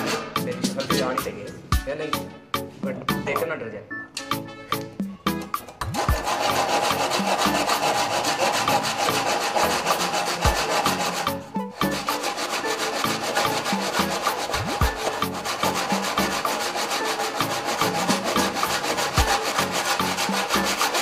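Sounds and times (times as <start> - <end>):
handsaw rasping through wood: 0.0 - 0.4, 5.9 - 21.0.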